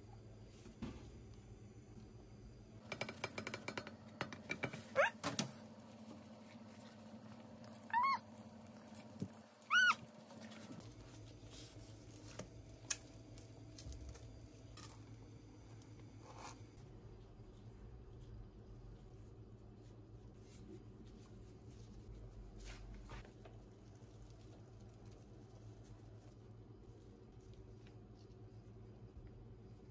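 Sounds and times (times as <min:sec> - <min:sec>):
animal calls rising and falling: 0:07.9 - 0:08.2, 0:09.6 - 0:10.0
quick rising squeak: 0:09.7 - 0:10.0.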